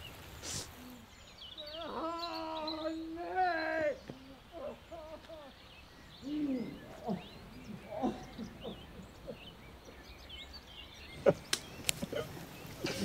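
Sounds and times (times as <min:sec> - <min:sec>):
birds cooing: 0:00.0 - 0:13.0
high bird chirps: 0:00.8 - 0:13.0
twigs cracking underfoot: 0:11.2 - 0:13.0.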